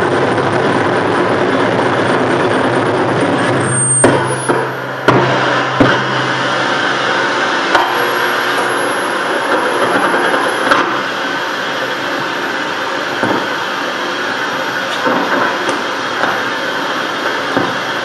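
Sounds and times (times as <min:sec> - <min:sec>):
low hum: 0:00.0 - 0:17.3
noise music hiss and static: 0:00.0 - 0:18.0.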